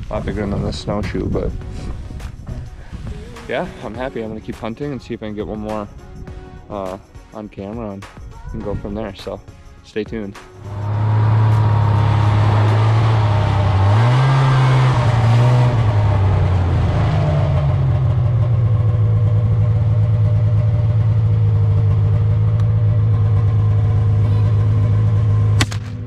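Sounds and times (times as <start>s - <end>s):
snowmobile engine running: 10.6s - 26.0s.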